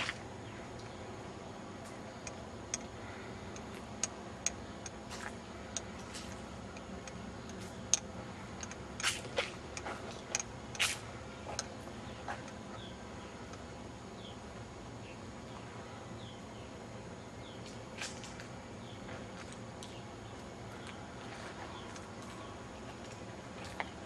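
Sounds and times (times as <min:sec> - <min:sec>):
sharp clicks and ticks: 0:02.2 - 0:02.9, 0:03.5 - 0:05.0, 0:05.7 - 0:10.9, 0:11.5 - 0:11.7.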